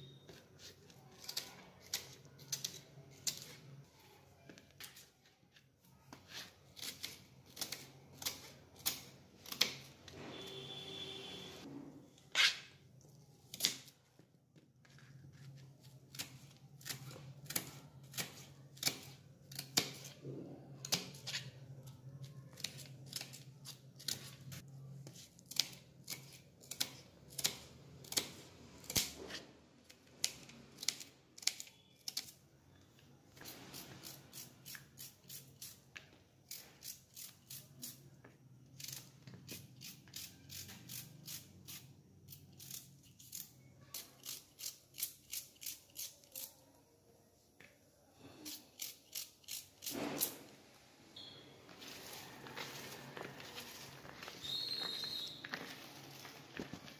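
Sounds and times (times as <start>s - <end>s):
knife slicing onion on board: 6.1s - 10.0s, 14.9s - 29.5s.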